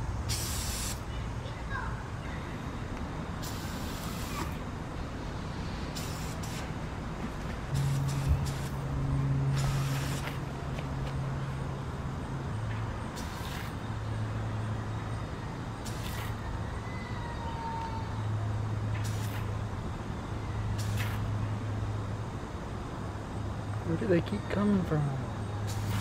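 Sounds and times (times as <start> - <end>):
steady low hum: 0.0 - 16.6
aerosol spray hissing: 0.3 - 1.0, 3.4 - 4.6, 5.8 - 6.8, 7.7 - 8.8, 9.5 - 10.4, 13.2 - 13.7, 15.8 - 16.3, 19.0 - 19.5.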